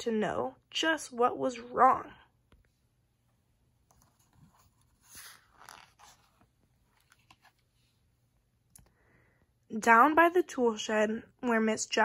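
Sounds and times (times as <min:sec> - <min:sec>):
book page turning: 0:03.9 - 0:08.1.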